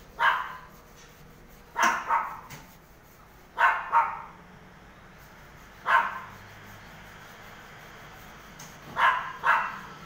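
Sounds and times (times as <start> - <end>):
dog barking: 0.2 - 0.7, 1.8 - 2.5, 3.6 - 4.4, 5.8 - 6.3, 8.9 - 10.0.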